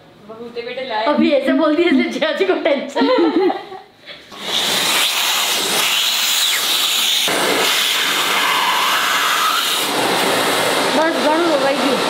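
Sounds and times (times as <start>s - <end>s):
vacuum cleaner motor hissing: 4.3s - 12.0s
hose nozzle on cloth: 4.4s - 10.2s.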